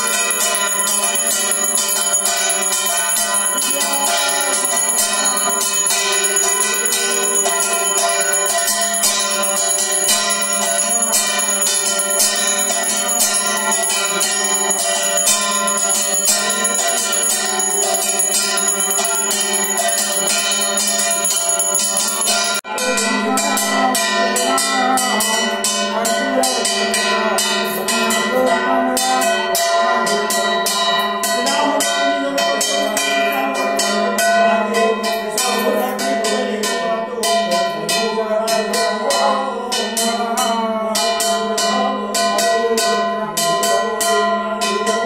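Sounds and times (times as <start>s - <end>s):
hand bell ringing rapidly: 0.0s - 22.6s
melody: 0.0s - 24.2s.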